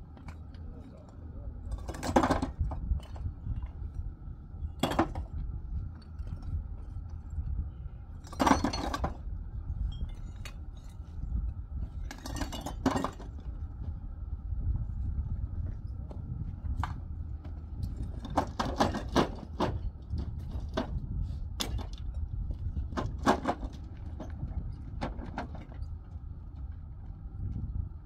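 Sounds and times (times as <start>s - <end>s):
bricks clinking together: 8.2s - 9.2s, 12.0s - 13.4s.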